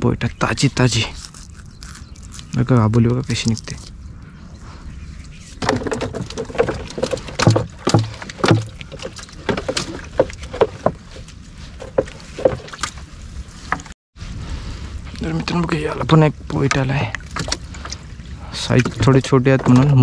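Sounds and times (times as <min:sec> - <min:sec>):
water splashes and knocks: 0:05.6 - 0:13.0, 0:16.6 - 0:20.0.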